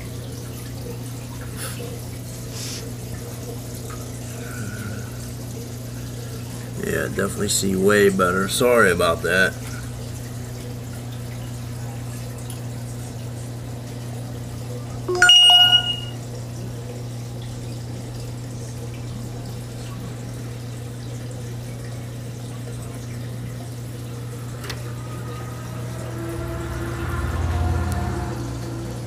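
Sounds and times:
aquarium pump hum and water flow: 0:00.0 - 0:29.0
bell-like chime: 0:15.1 - 0:16.2.

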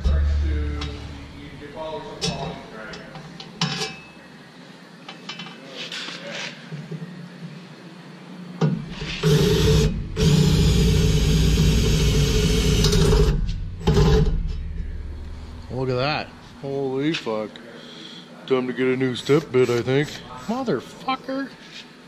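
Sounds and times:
cordless drill grinding whine: 0:09.1 - 0:13.3.

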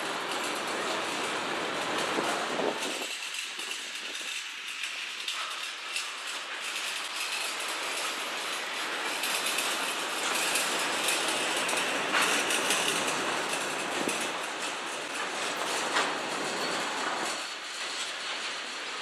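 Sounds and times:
freight train wheels clattering: 0:00.0 - 0:19.0
train rushing rattle: 0:00.0 - 0:19.0.

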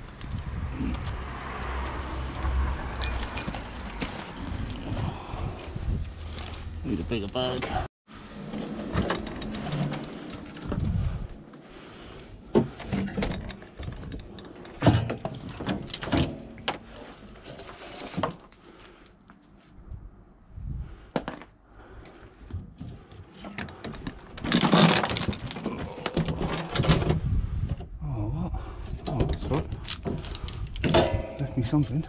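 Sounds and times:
scrap metal knocking and clinking: 0:02.9 - 0:04.6, 0:23.4 - 0:27.1, 0:29.4 - 0:32.0
metal scraping and rattling: 0:23.7 - 0:27.3, 0:29.3 - 0:32.0.

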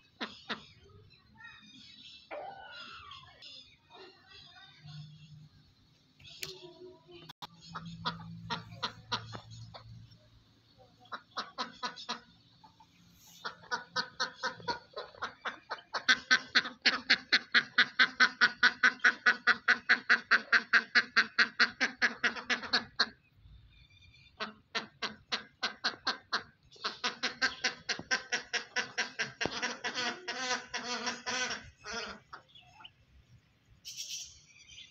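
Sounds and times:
poultry harsh calls: 0:07.5 - 0:10.2, 0:11.0 - 0:23.3, 0:24.1 - 0:33.0.

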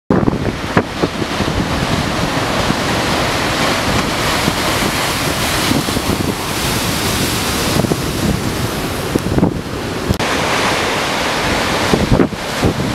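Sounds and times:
surf crashing against rocks: 0:00.1 - 0:12.9
wind buffeting the microphone: 0:00.1 - 0:12.9.

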